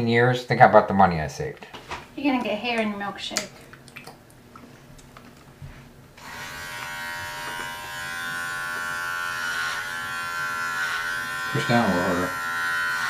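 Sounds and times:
electric hair clippers buzzing: 6.2s - 13.0s.

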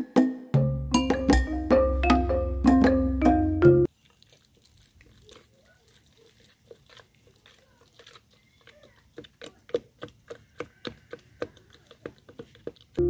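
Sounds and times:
metal utensil pounding fruit mash: 5.4s - 13.0s.

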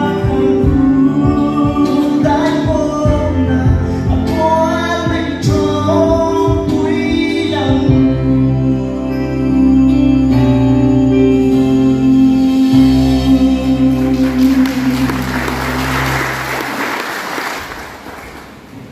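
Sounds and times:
man singing: 0.0s - 16.0s
backing track chords: 0.0s - 17.0s
audience applauding: 13.9s - 18.9s.

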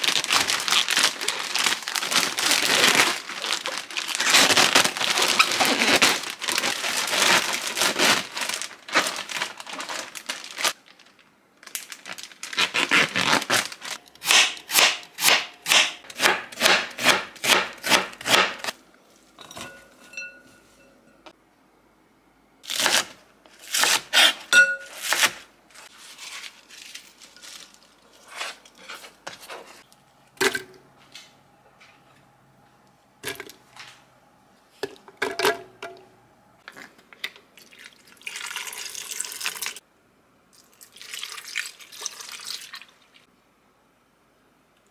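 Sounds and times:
plastic bag crinkling: 0.0s - 14.1s, 25.9s - 29.9s.

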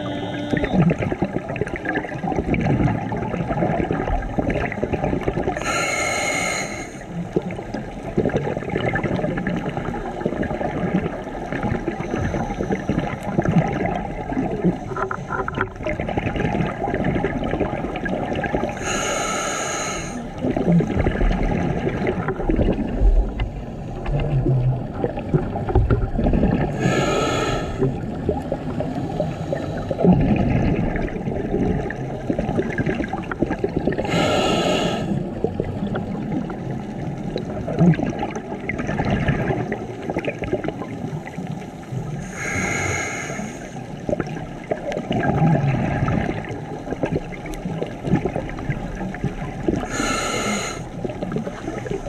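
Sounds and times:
underwater bubbling and crackling: 0.0s - 52.0s
diver breathing through regulator: 5.6s - 7.1s, 18.7s - 20.3s, 26.7s - 27.9s, 34.0s - 35.2s, 42.2s - 43.9s, 49.8s - 50.9s.

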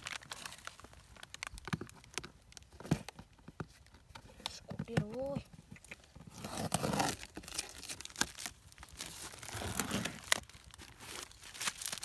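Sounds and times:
packing tape tearing: 0.0s - 2.2s, 6.2s - 12.0s
cardboard rustling: 0.0s - 12.0s.

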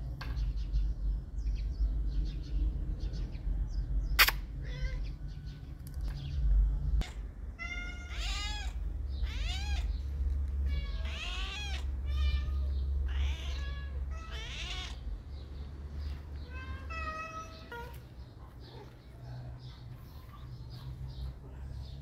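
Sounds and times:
low rumble: 0.6s - 7.6s
cat meowing: 4.6s - 5.2s, 7.0s - 15.0s, 16.4s - 18.1s.

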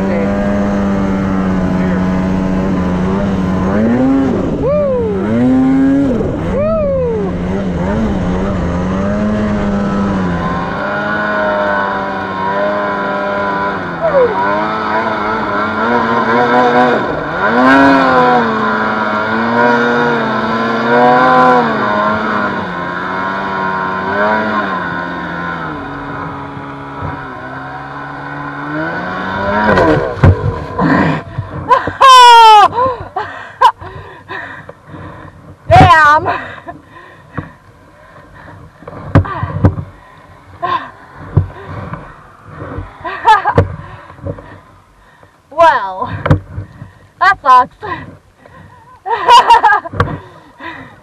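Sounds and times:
snowmobile engine revving: 0.0s - 44.6s, 48.7s - 50.8s.

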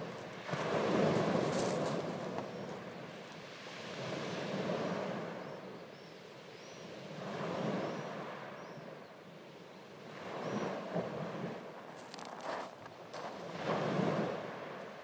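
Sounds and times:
waves washing onto beach: 0.0s - 5.6s, 10.0s - 15.0s.

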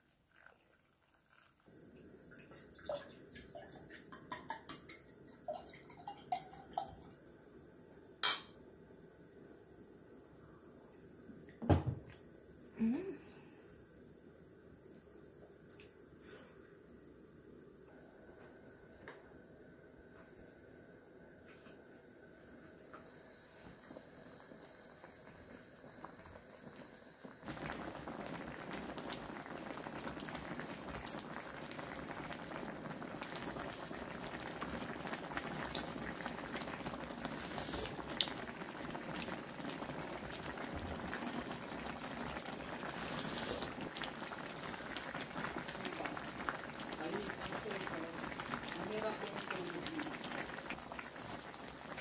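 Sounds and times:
pot bubbling: 0.0s - 7.2s, 22.8s - 52.0s.

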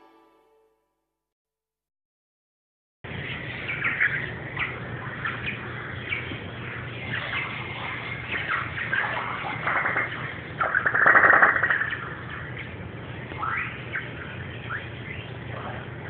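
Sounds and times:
steady low hum: 3.1s - 16.0s
high chirping animal calls: 3.2s - 15.9s.

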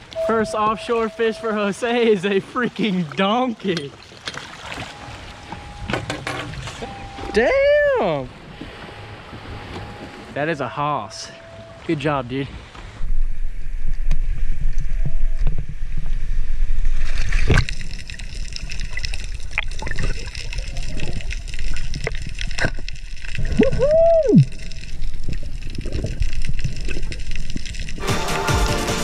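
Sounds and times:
water sloshing and gurgling: 0.0s - 28.0s
electronic music: 28.0s - 29.0s.

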